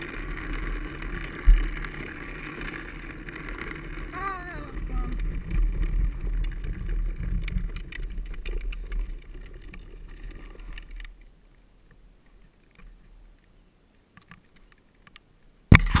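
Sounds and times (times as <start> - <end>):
clicks and rattles: 0.0 - 11.2
wheels rumbling on wet asphalt: 0.0 - 11.2
wind buffeting camera: 0.0 - 11.3.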